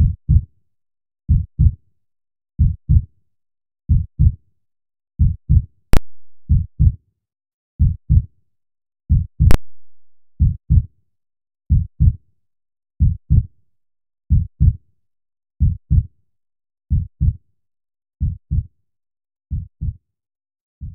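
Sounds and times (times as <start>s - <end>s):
heartbeat thumps: 3.9s - 4.4s, 5.2s - 7.0s, 9.1s - 10.8s, 13.0s - 13.5s, 14.3s - 14.8s, 15.6s - 16.1s, 16.9s - 17.4s, 19.5s - 20.0s.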